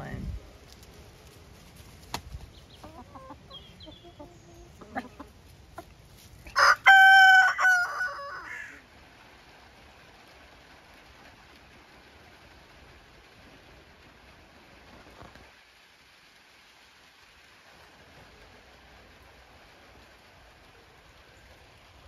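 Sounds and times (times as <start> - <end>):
hens clucking: 1.8 - 8.8
rooster crowing: 6.5 - 8.8.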